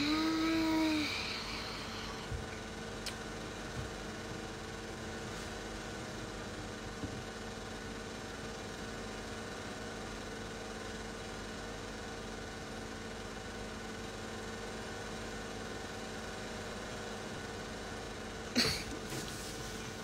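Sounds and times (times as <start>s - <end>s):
steady background hum: 0.0s - 20.0s.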